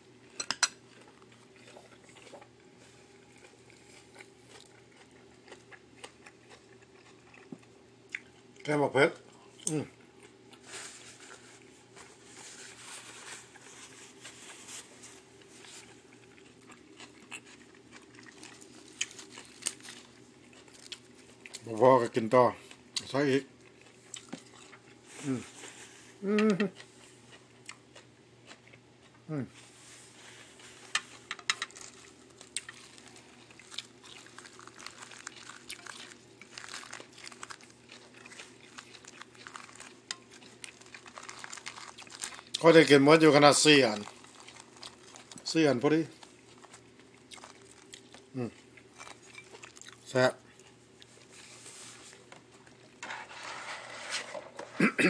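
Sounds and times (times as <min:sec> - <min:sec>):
person chewing and crunching food: 0:00.0 - 0:54.8
faint steady hum: 0:00.0 - 0:55.0.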